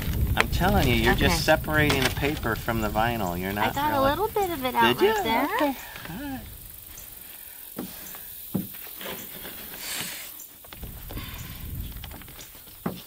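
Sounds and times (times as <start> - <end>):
sharp ticks: 0.0 - 8.6.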